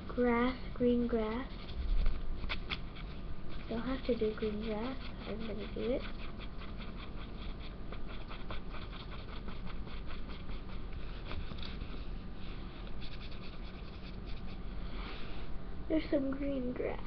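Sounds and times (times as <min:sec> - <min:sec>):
marker scribbling on paper: 0:01.2 - 0:12.0, 0:13.0 - 0:14.6.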